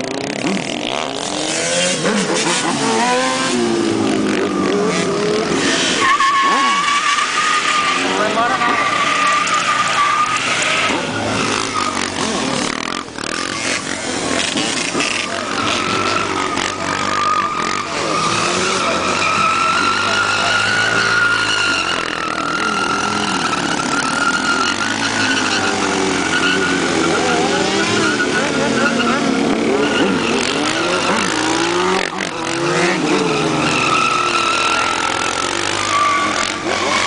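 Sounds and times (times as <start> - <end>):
motorcycle engine revving: 0.0 - 37.0
tyre squealing: 0.0 - 37.0.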